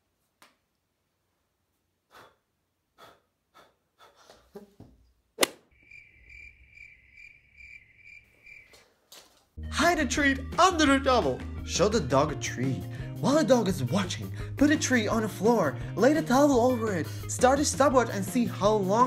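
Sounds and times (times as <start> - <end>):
cricket chirping: 5.7 - 9.0.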